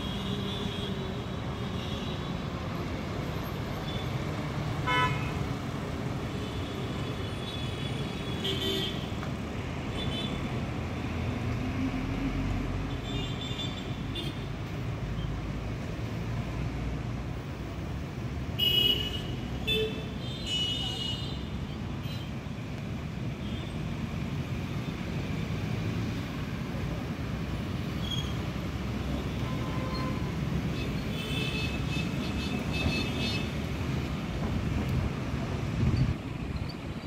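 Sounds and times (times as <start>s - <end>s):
road traffic rumble: 0.0s - 37.0s
vehicle horns honking: 4.8s - 5.3s.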